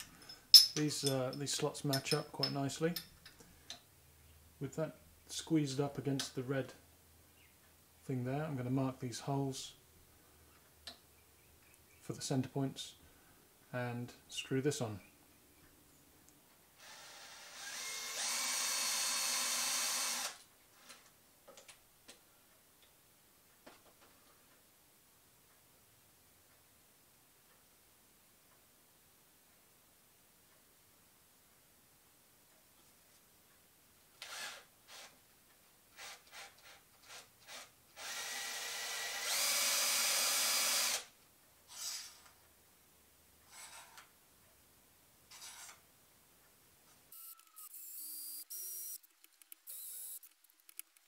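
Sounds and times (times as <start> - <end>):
cordless drill drilling aluminium: 16.8 - 20.4, 34.2 - 35.2, 36.0 - 41.1, 41.7 - 42.2, 47.2 - 49.0, 49.7 - 50.3.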